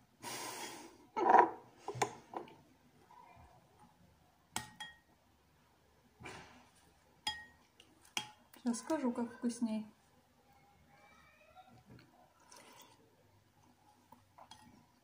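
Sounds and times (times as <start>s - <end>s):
spoon clinking against ceramic bowl: 4.6s - 5.1s, 7.2s - 7.6s.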